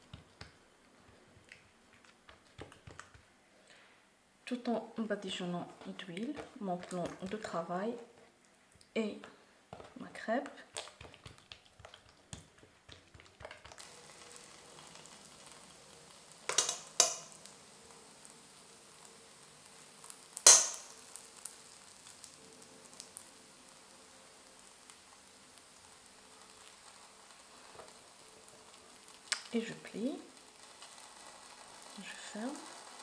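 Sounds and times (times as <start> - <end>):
dough pressed by hand: 0.0 - 3.3
faint steady hiss: 0.0 - 33.0.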